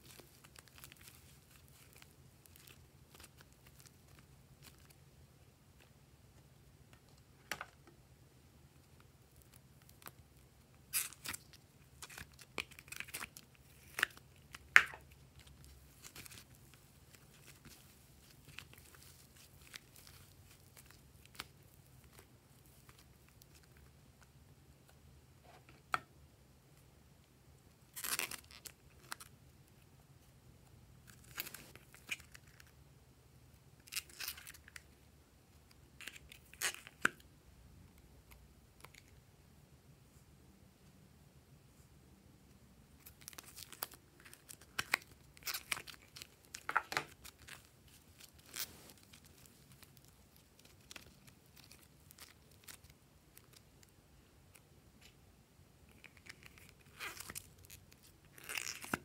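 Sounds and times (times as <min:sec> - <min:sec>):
clay tearing and crackling: 0:00.0 - 0:05.0, 0:09.3 - 0:24.3, 0:27.9 - 0:29.3, 0:43.0 - 0:53.9, 0:55.8 - 0:59.0.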